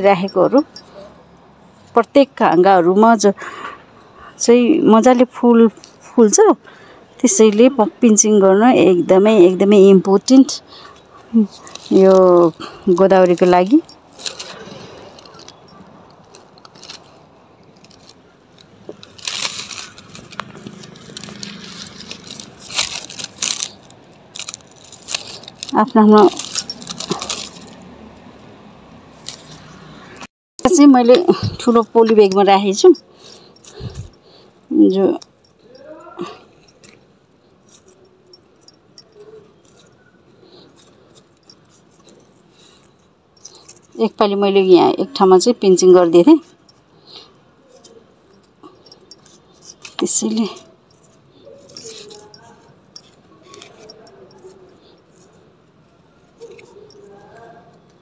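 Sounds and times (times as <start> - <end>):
leaves rustling: 11.4 - 28.3, 49.2 - 55.4.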